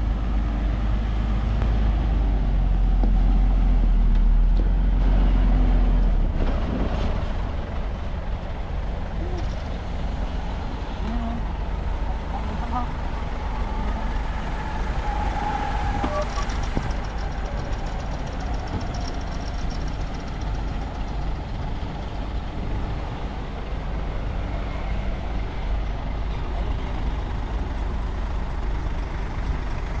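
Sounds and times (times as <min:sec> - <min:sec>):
diesel machinery rumbling: 0:00.0 - 0:30.0
fast high rattle: 0:15.8 - 0:22.7.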